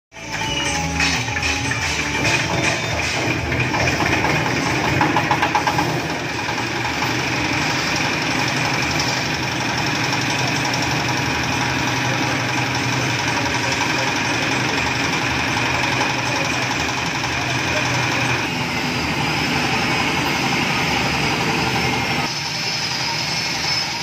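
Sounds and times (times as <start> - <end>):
diesel engine knocking chug: 0.2 - 22.3.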